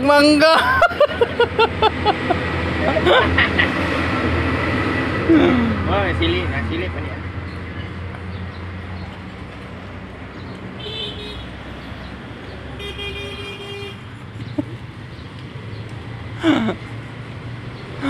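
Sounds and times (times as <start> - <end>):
engine and traffic noise: 0.0 - 18.0
vehicle horn tooting: 10.8 - 11.6, 12.8 - 14.1.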